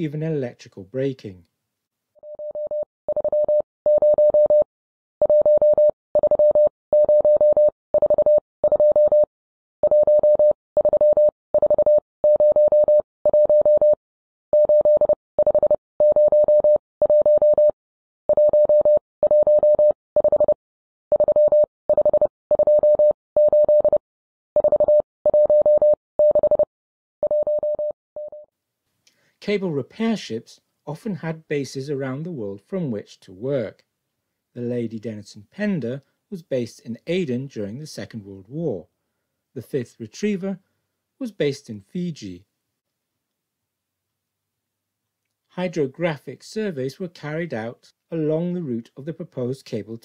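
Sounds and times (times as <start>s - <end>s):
morse code beeps: 2.2s - 14.0s, 14.6s - 24.0s, 24.6s - 28.5s.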